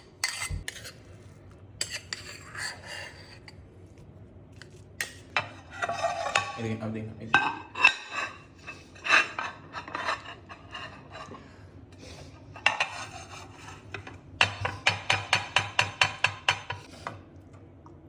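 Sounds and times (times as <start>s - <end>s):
ceramic bowl scraping on platter: 0.0s - 3.6s, 5.4s - 6.8s, 7.4s - 11.6s, 12.5s - 14.2s.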